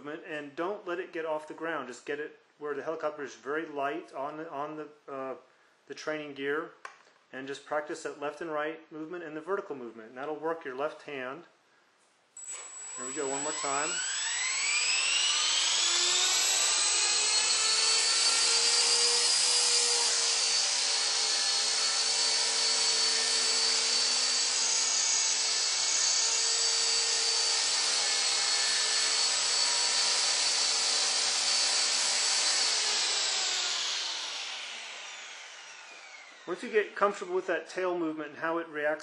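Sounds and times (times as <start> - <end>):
rc helicopter high-pitched whine: 12.4 - 36.5.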